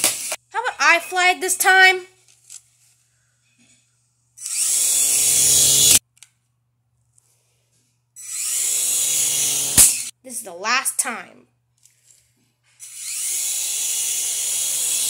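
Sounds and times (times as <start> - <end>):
toy helicopter rotor whirring: 4.4 - 6.0, 8.2 - 10.1, 12.8 - 15.0.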